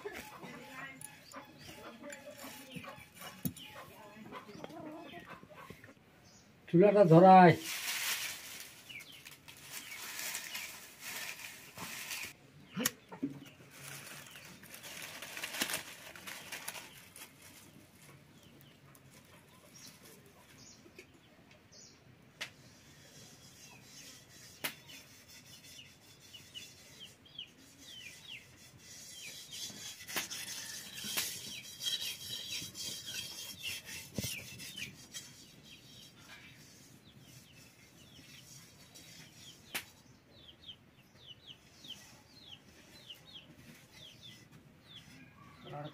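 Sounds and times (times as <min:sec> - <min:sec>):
dry leaves rustling: 0:07.3 - 0:12.4, 0:13.6 - 0:20.2.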